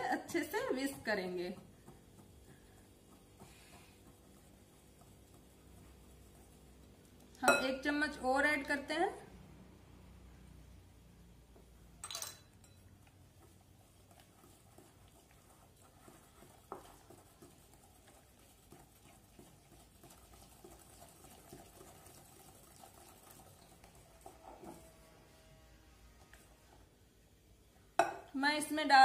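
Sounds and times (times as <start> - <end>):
whisk stirring in glass bowl: 0.0 - 7.3, 12.6 - 25.1.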